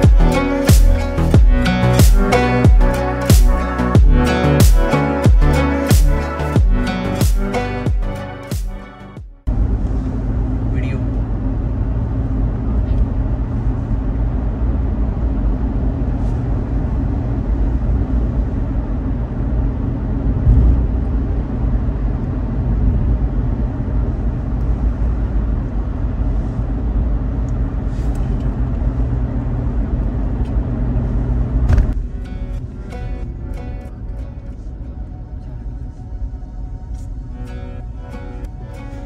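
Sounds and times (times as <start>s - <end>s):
low outdoor rumble: 9.4s - 39.0s.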